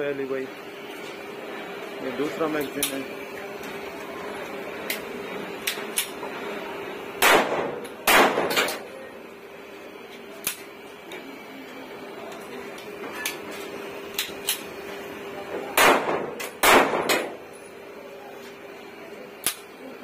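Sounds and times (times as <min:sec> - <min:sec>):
pistol shots echoing: 0:07.2 - 0:08.8, 0:15.8 - 0:17.4
pistol handling clicks: 0:10.4 - 0:10.6, 0:19.4 - 0:19.7.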